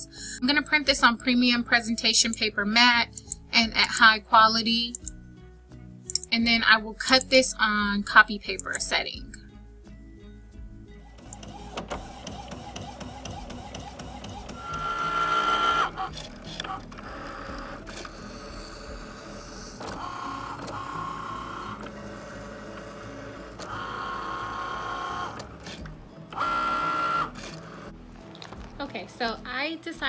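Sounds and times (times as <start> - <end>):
cutting machine motors whirring: 11.1 - 28.0.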